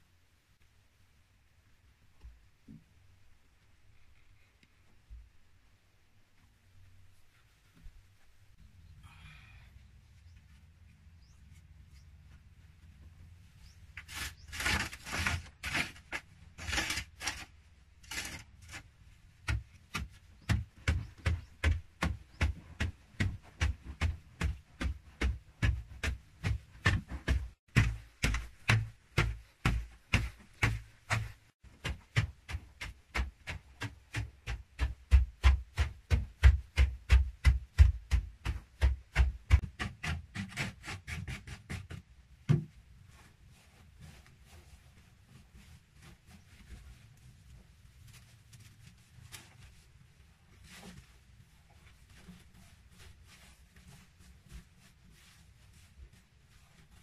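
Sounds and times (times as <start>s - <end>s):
hand tool scraping earth floor: 13.6s - 42.1s, 50.5s - 57.0s
tool striking earth floor: 13.9s - 42.7s.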